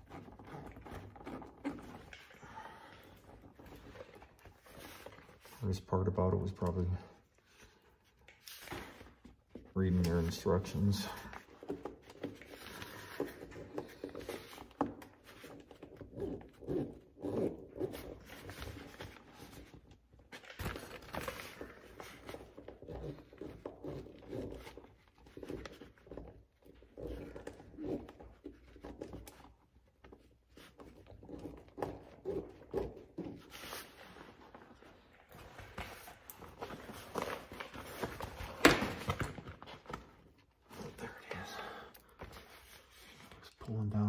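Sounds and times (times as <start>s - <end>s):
fabric rustling and scraping on plastic: 7.5s - 41.0s.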